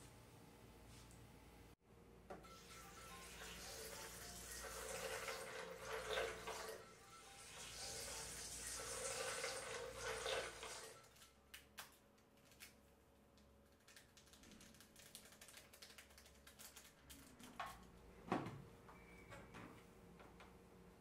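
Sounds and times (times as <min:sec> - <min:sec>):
water pouring into plastic container: 0:07.5 - 0:11.0.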